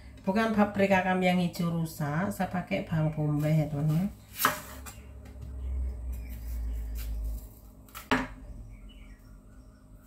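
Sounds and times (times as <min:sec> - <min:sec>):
knife slicing onion on board: 0:03.2 - 0:05.0, 0:06.1 - 0:08.4.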